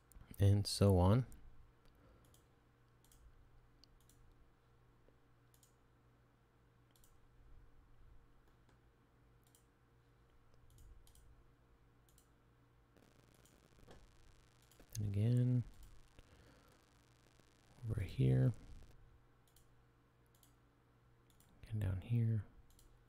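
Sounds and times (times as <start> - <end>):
low steady hum: 0.0 - 23.0
computer mouse clicks: 2.2 - 4.4, 5.5 - 5.8, 6.9 - 7.2, 9.4 - 9.7, 10.5 - 11.3, 12.1 - 12.3, 18.8 - 19.7, 20.3 - 20.6, 21.3 - 21.6, 22.7 - 22.9.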